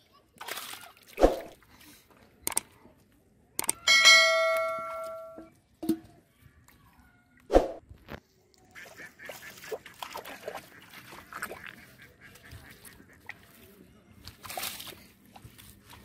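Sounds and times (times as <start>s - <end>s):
muddy water splashing: 0.3s - 2.6s, 8.6s - 16.0s.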